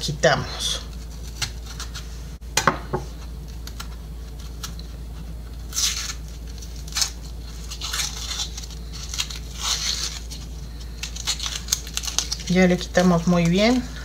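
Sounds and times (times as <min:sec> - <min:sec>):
onion skin crinkling and tearing: 0:00.6 - 0:02.2, 0:03.0 - 0:14.0.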